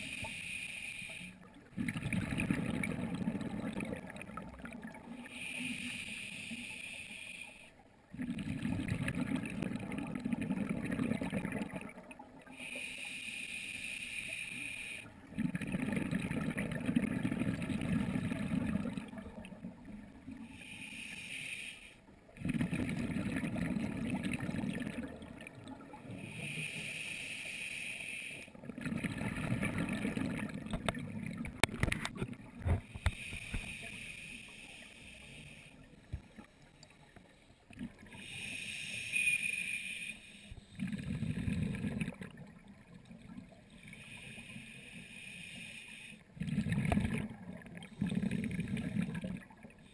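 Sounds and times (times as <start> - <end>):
regulator hiss on inhale: 0.0 - 1.4, 5.2 - 7.8, 12.5 - 15.2, 20.4 - 22.1, 26.2 - 28.6, 32.8 - 41.0, 43.7 - 46.4
exhaled bubbles rumbling: 1.5 - 5.2, 8.1 - 12.5, 15.2 - 20.4, 22.4 - 26.2, 28.6 - 33.1, 40.8 - 43.6, 46.4 - 49.9.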